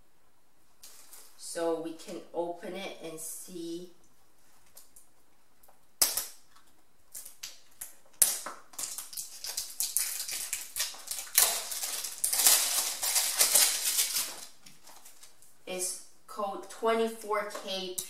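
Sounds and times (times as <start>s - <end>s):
packaging snapping: 6.0s - 15.4s
packaging crinkling and rustling: 6.5s - 15.6s.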